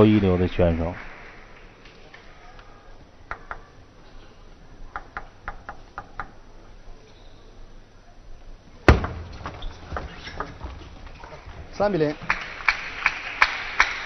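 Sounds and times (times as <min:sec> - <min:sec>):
loud thump: 0:08.9 - 0:11.1.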